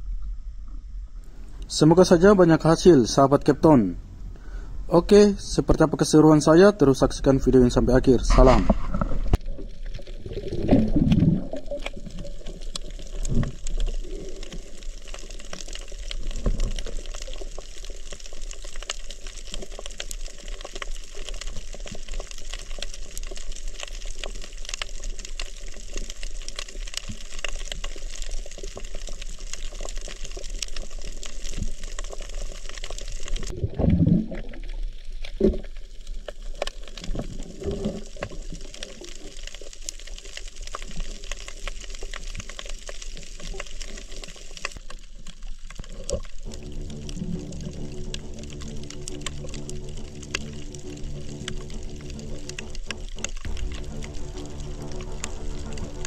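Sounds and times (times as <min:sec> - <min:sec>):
crackling hiss with fine clicks: 0:00.0 - 0:33.5, 0:34.4 - 0:56.0
low rush of water: 0:46.4 - 0:56.0.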